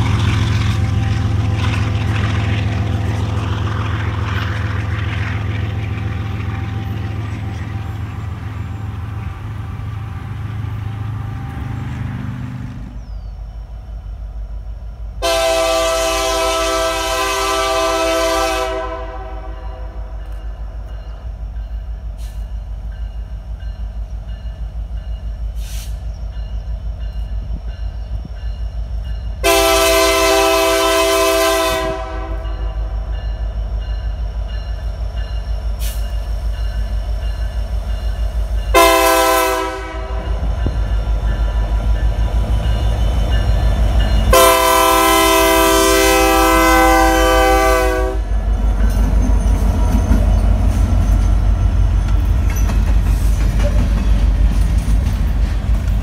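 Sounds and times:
diesel locomotive engine droning: 0.0 - 56.0
low rumble of train: 0.0 - 56.0
locomotive air horn blasts: 15.2 - 20.2, 29.4 - 32.9, 38.7 - 40.5, 44.3 - 48.4.

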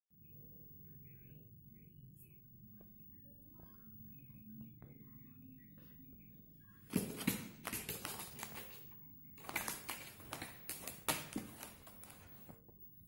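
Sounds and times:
cat claws scratching fabric: 6.9 - 12.5.

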